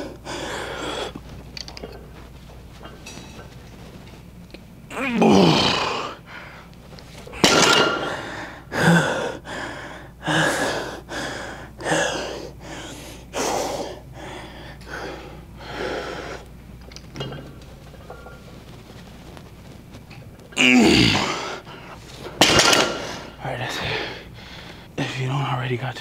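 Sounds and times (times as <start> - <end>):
person grunting: 4.9 - 6.2, 20.6 - 21.6.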